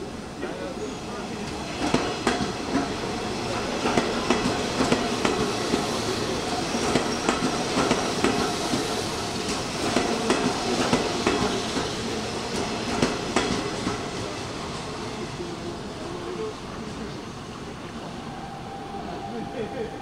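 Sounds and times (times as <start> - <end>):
train rumble: 0.0 - 20.0
train wheels clacking over rail joints: 1.5 - 14.4.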